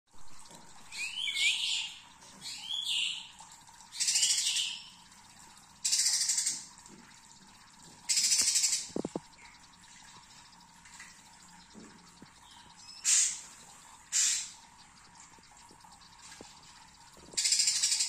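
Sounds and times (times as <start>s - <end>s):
bird calling: 0.9s - 3.2s.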